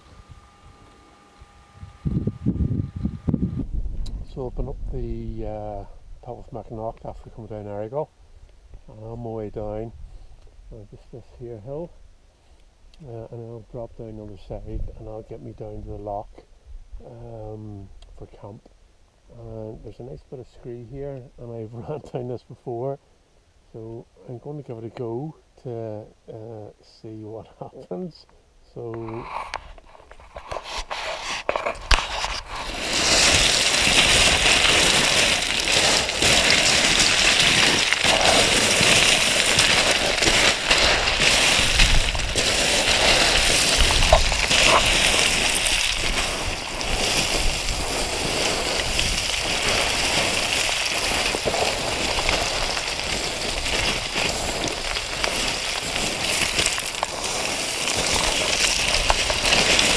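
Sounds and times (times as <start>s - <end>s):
boots sliding on scree stones: 29.0s - 59.9s.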